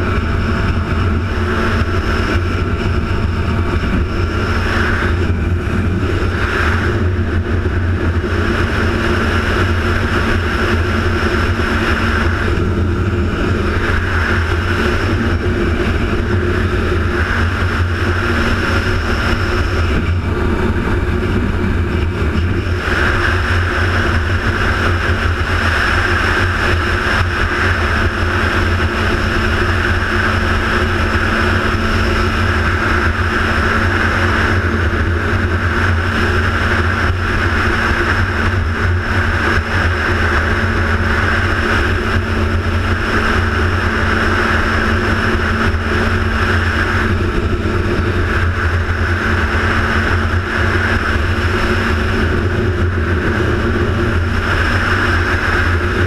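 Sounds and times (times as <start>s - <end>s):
low engine rumble: 0.0s - 56.0s.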